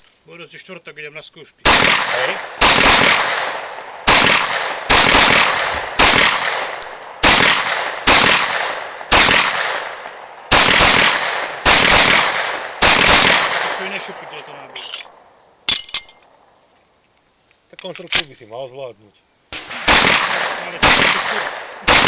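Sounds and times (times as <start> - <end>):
pistol shots echoing: 1.7 - 14.7, 19.6 - 22.0.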